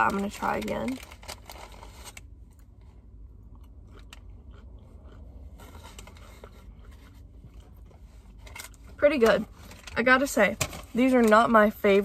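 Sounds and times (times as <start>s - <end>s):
person chewing crispy food: 1.0s - 8.4s.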